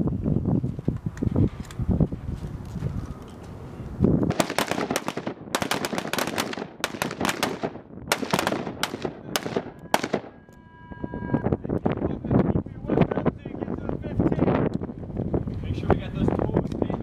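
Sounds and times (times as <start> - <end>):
rifles firing volleys: 4.3 - 10.4.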